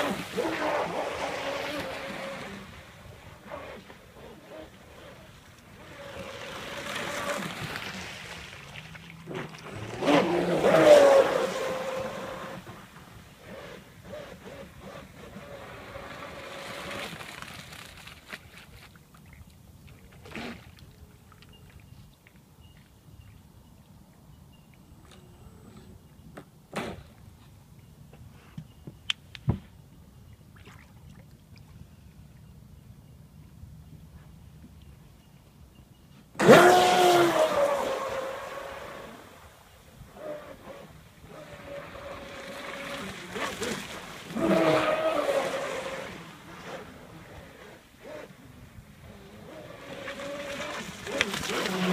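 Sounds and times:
water slapping: 0:00.0 - 0:21.0, 0:36.4 - 0:39.5, 0:40.1 - 0:48.4, 0:49.1 - 0:51.9
small waves lapping: 0:00.0 - 0:22.5, 0:30.5 - 0:31.9, 0:36.4 - 0:51.9.

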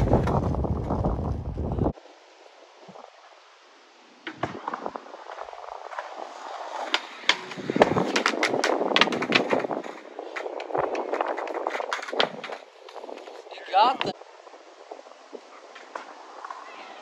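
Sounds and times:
skateboard wheels rolling on asphalt: 0:00.0 - 0:17.0
skateboard deck clacks: 0:04.3 - 0:13.4.

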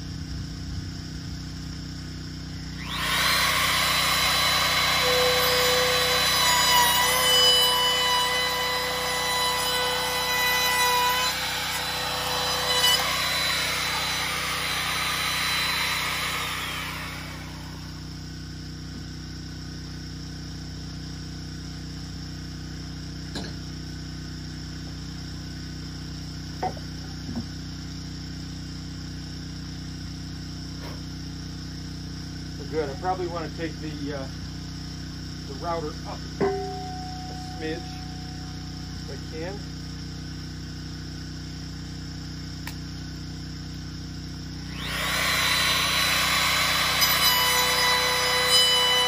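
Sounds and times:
electric router whining: 0:02.8 - 0:18.0, 0:44.6 - 0:49.0
steady low hum: 0:16.6 - 0:44.8.

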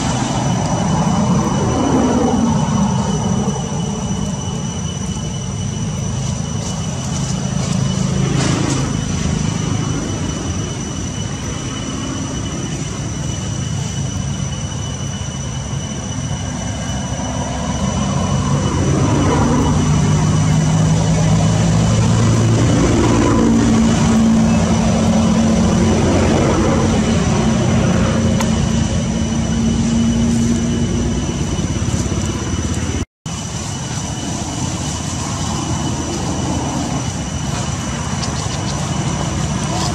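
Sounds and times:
high-pitched whine: 0:00.0 - 0:39.9
traffic engine rumble: 0:00.0 - 0:39.9.

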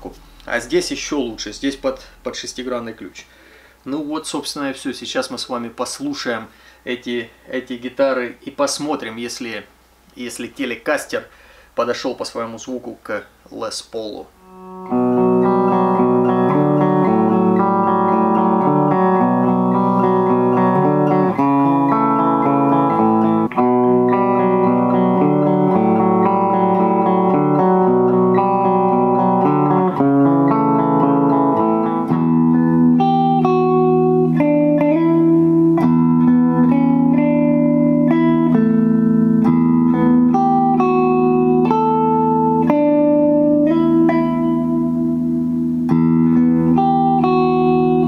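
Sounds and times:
clean electric guitar playing: 0:00.0 - 0:02.9, 0:14.4 - 0:48.0.

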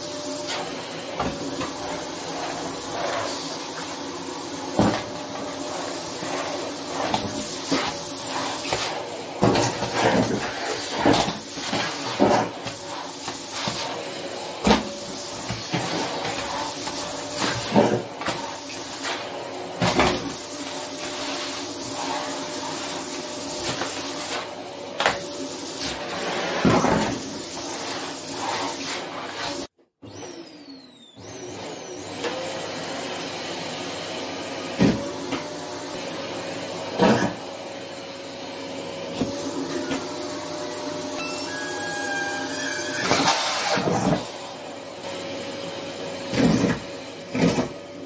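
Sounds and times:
vacuum cleaner running: 0:00.0 - 0:48.0.

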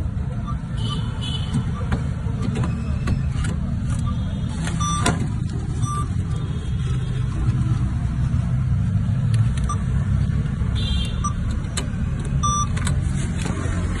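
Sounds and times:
short electronic beeps: 0:04.0 - 0:05.1, 0:05.8 - 0:06.3, 0:12.4 - 0:12.8.

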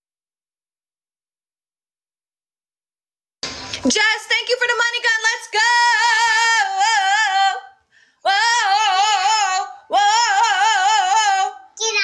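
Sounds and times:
high voice singing unaccompanied: 0:04.8 - 0:12.0.

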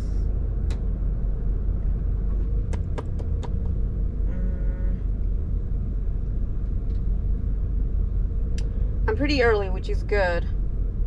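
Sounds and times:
van engine idling: 0:00.0 - 0:11.0
brief tone: 0:04.3 - 0:05.1.

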